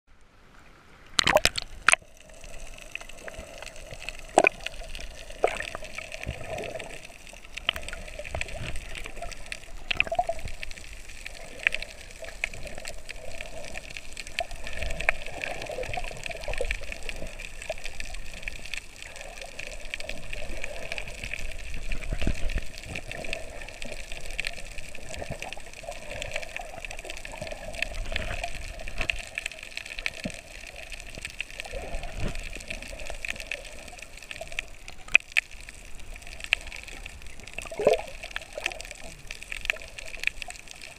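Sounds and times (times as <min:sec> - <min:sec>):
underwater water sloshing and bubbling: 0:00.1 - 0:40.9
knocks and splashes: 0:01.2 - 0:02.0.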